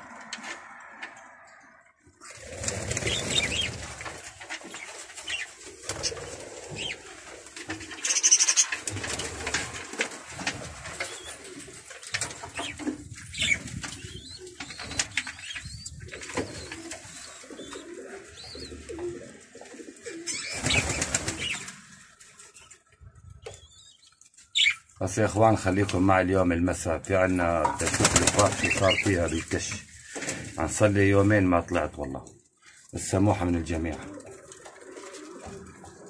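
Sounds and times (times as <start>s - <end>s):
pigeons cooing: 0.0s - 22.1s, 33.8s - 36.0s
budgerigars chirping: 24.0s - 24.8s.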